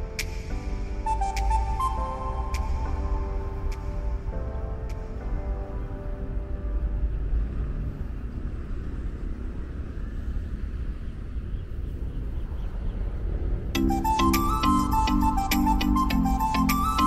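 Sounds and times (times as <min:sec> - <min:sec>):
music: 0:00.0 - 0:08.2, 0:13.8 - 0:17.0
low outdoor city rumble: 0:00.0 - 0:17.0.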